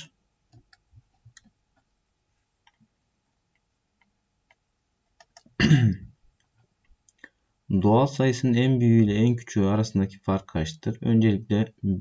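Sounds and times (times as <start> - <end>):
person clearing throat: 5.6 - 6.1.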